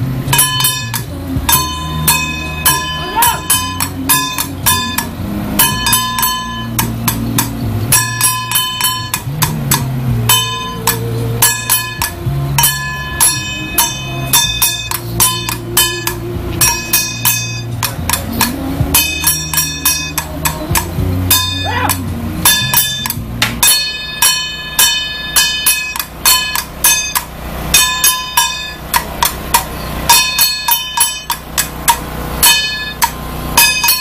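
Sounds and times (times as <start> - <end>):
hand gong struck rapidly: 0.0 - 34.0
low steady hum: 0.0 - 34.0.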